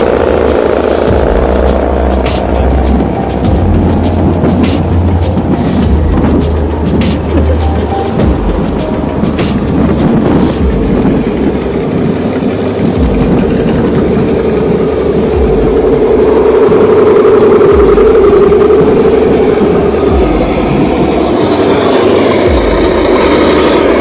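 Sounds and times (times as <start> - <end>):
electric motors whining: 0.0 - 24.0.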